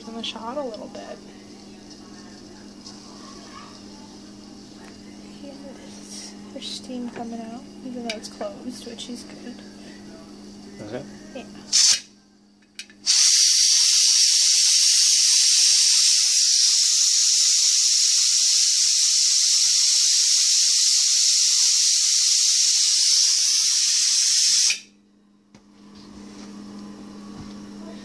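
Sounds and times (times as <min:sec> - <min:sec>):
steam hissing from valve: 0:11.7 - 0:12.0, 0:13.0 - 0:24.9.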